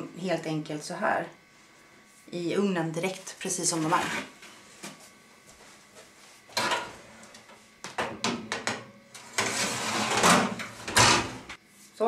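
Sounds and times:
metal baking tray scraping rattle: 0:09.2 - 0:11.4.

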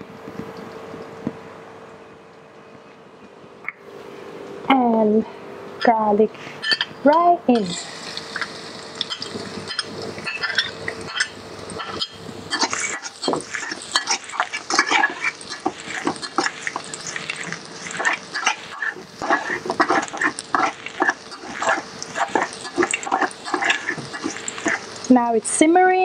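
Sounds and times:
garlic sizzling in oil: 0:07.0 - 0:26.0
metal spatula scraping a wok: 0:09.1 - 0:25.0.

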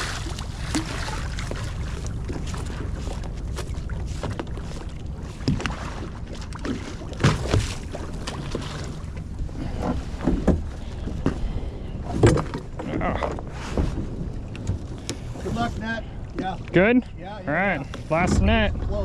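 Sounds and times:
splashes: 0:00.0 - 0:10.2
boat rumble: 0:00.0 - 0:19.0
net knocking on boat: 0:06.7 - 0:08.9, 0:09.8 - 0:11.4.

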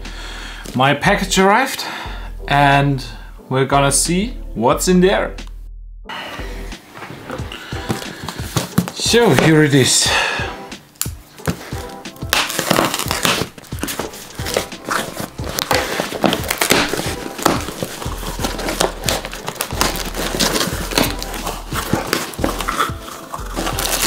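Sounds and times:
cardboard box being opened: 0:12.5 - 0:24.0.

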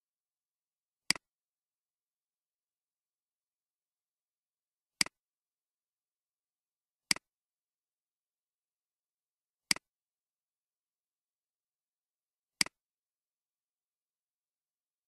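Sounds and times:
computer mouse clicks: 0:12.6 - 0:12.8.

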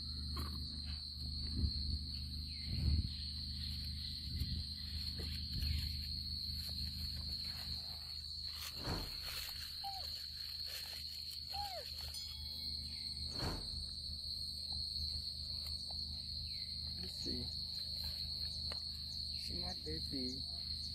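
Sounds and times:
crickets trilling: 0:00.0 - 0:20.9
short falling squeak: 0:13.3 - 0:14.0.

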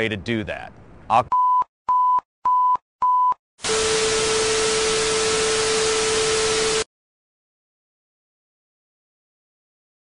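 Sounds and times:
censor bleep: 0:01.3 - 0:03.4.

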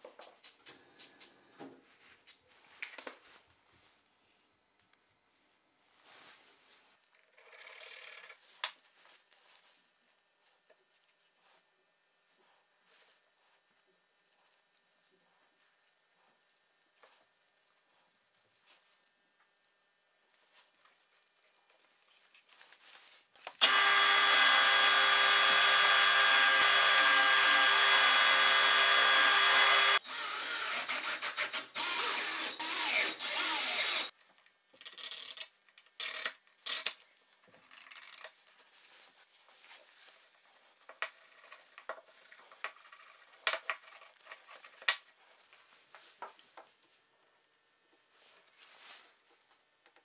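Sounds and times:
bench power tool running: 0:23.6 - 0:34.1.

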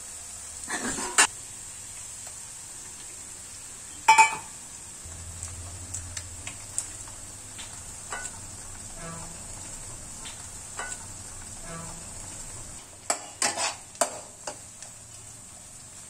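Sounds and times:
onion sizzling in oil: 0:00.0 - 0:16.0
egg cracking clink: 0:04.1 - 0:04.5, 0:05.5 - 0:08.8, 0:10.2 - 0:11.2
spatula scraping pan: 0:06.4 - 0:14.7
tap on pan: 0:13.1 - 0:14.6.

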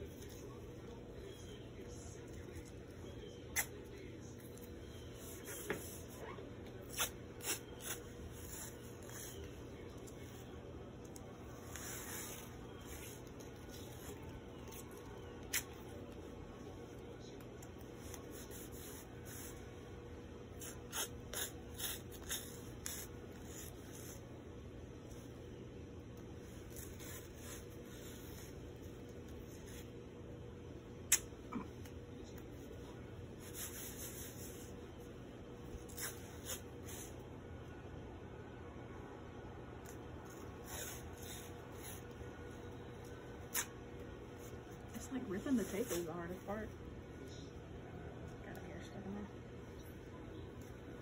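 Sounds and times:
steady low hum: 0:00.0 - 0:51.0
tape tearing: 0:43.4 - 0:43.7.

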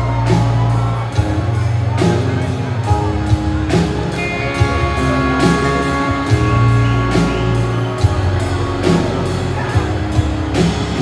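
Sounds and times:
drums with steady beat: 0:00.0 - 0:11.0
live country-rock band: 0:00.0 - 0:11.0.

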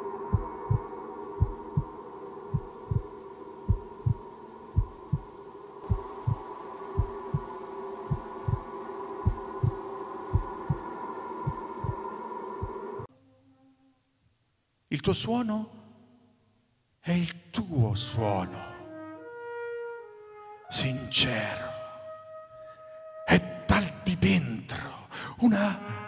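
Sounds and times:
droning hum of held tones: 0:00.0 - 0:13.1
heartbeat thumps: 0:00.3 - 0:00.8, 0:01.4 - 0:01.9, 0:02.5 - 0:03.1, 0:03.7 - 0:04.2, 0:04.8 - 0:06.4, 0:07.0 - 0:07.5, 0:08.1 - 0:10.8, 0:11.5 - 0:12.0.

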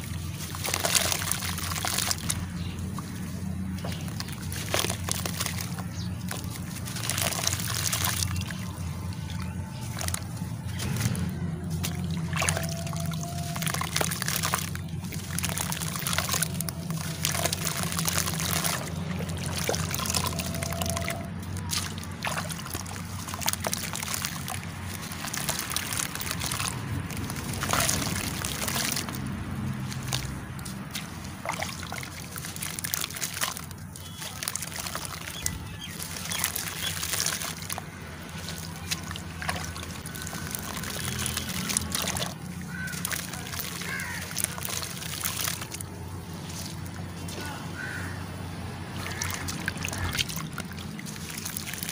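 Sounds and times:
clay lumps crackling: 0:00.0 - 0:48.0, 0:48.8 - 0:51.9
water sloshing and trickling: 0:00.0 - 0:51.9.

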